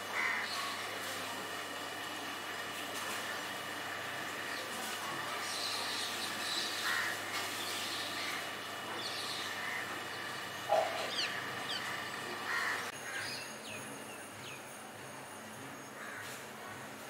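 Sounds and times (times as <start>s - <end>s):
birds chirping: 5.4s - 14.6s.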